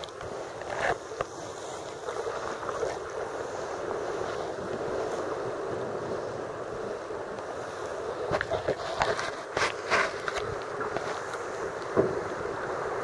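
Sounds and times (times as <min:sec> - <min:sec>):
sea water lapping against rock: 0:07.5 - 0:13.0.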